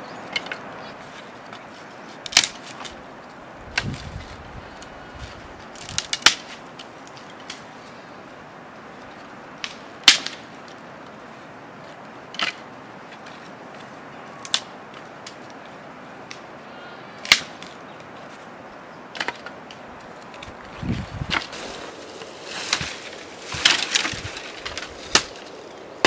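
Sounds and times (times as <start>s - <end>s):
dry sticks snapping: 0.3s - 7.8s, 9.0s - 11.2s, 12.0s - 13.6s, 14.4s - 15.6s, 16.2s - 16.5s, 17.2s - 18.1s, 19.1s - 26.0s.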